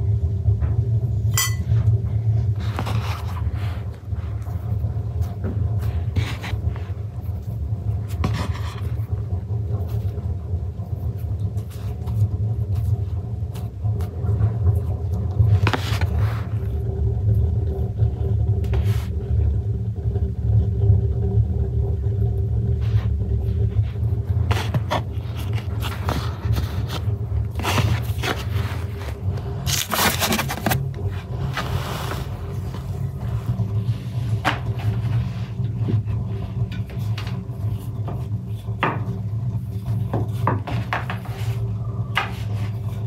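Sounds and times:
faint hum: 0.0 - 43.0
low rumble: 0.0 - 43.0
dough scraping and tapping on wood: 2.6 - 10.3, 23.1 - 43.0.

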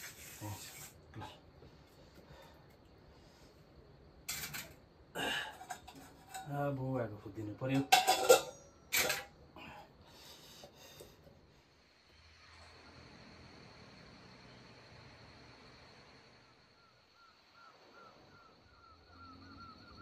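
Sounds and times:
metal pots clanking: 4.3 - 6.6, 7.7 - 9.4
metal ladle knocking on pots: 7.8 - 8.6.

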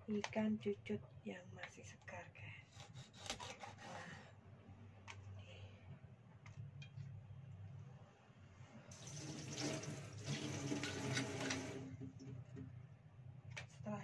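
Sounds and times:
tap water splashing into metal sink: 9.0 - 12.3.

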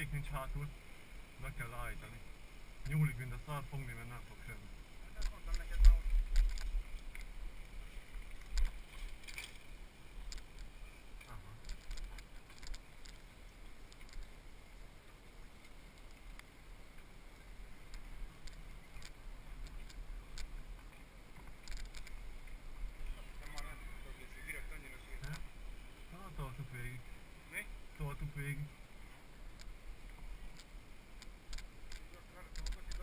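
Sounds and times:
bike clicks and rattles: 5.2 - 7.3, 8.3 - 14.3, 17.9 - 20.6, 21.4 - 22.2, 30.5 - 33.0.

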